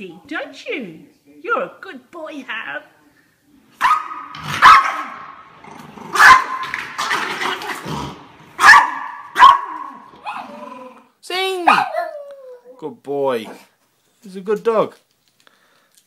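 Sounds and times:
small dog barking: 0:03.8 - 0:05.3, 0:06.1 - 0:06.7, 0:08.6 - 0:10.4, 0:11.6 - 0:12.2.

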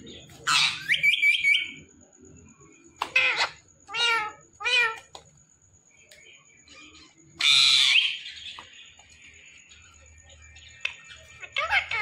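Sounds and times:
parrot calls: 0:00.4 - 0:01.8, 0:03.0 - 0:05.1, 0:06.7 - 0:08.6, 0:11.1 - 0:12.0
parrot screeching harshly: 0:07.4 - 0:08.2.

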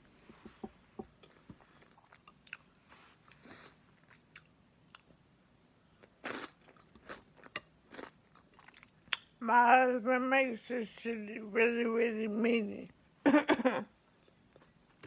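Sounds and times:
person chewing crunchy food: 0:01.2 - 0:05.2, 0:06.0 - 0:09.4.

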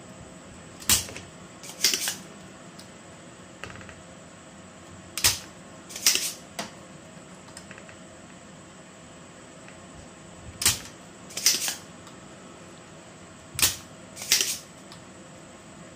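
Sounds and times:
desoldering pump snap: 0:05.2 - 0:06.3, 0:10.6 - 0:11.8, 0:13.6 - 0:14.6.

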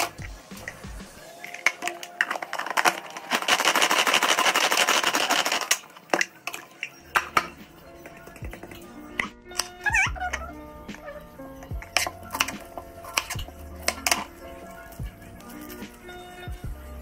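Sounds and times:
vegetable chopper blades clattering: 0:01.5 - 0:06.3.

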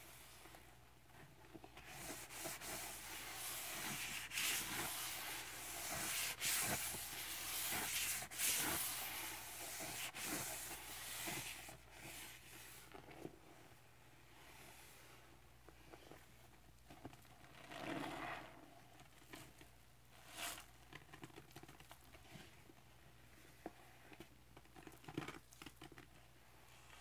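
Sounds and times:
sponges rubbing in suds: 0:01.8 - 0:12.9.

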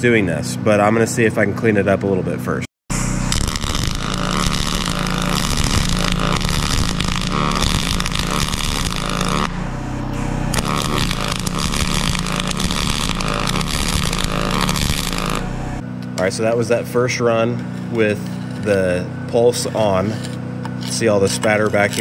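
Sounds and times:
welding arc crackle and sizzle: 0:02.9 - 0:09.6, 0:10.2 - 0:16.8, 0:17.8 - 0:22.0.

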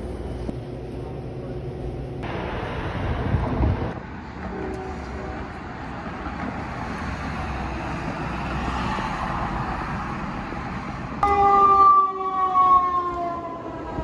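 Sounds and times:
street traffic: 0:00.0 - 0:14.0
ambulance siren passing: 0:11.2 - 0:14.0.

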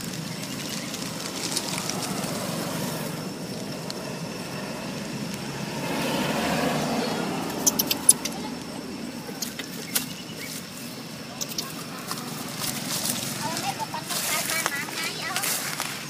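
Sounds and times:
outdoor rumble and hiss: 0:00.0 - 0:16.0.

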